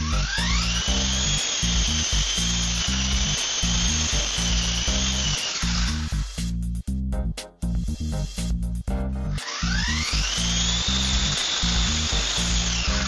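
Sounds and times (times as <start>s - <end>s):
rc helicopter motor whine: 0.0s - 6.6s, 9.4s - 13.0s
background music: 0.0s - 13.0s.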